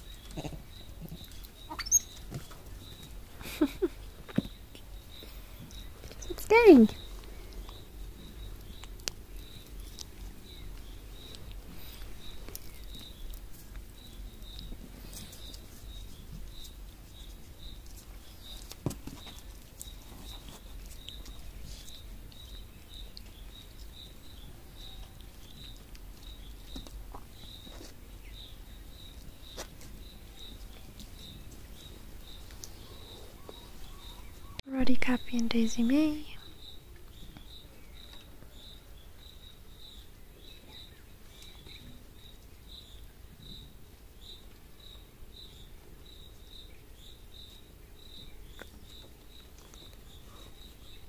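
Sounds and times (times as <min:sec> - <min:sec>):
faint high chirp: 0:00.0 - 0:03.7.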